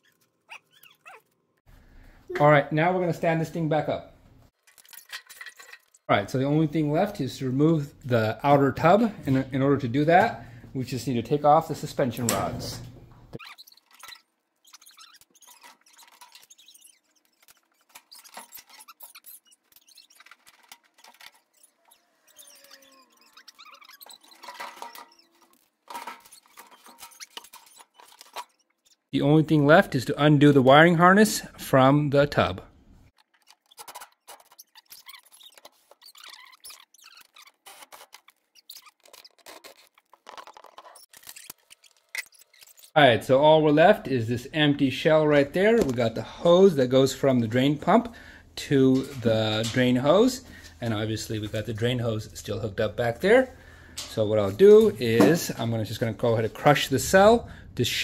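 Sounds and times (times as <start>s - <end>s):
plastic tub squeaks and clicks: 0.0s - 1.4s, 13.2s - 29.1s, 33.2s - 43.0s.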